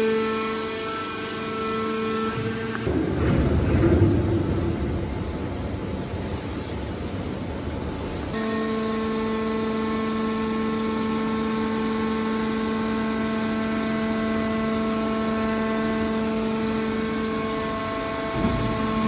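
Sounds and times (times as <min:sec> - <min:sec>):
hydraulic pump whine: 0:00.0 - 0:06.6, 0:07.5 - 0:19.0
mechanical rumble: 0:02.3 - 0:08.4, 0:15.4 - 0:19.0.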